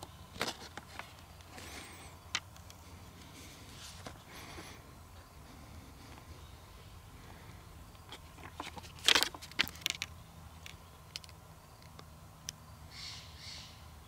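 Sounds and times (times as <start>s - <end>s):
short breaths: 2.8s - 7.8s
camera handling clicks and knocks: 8.0s - 12.0s.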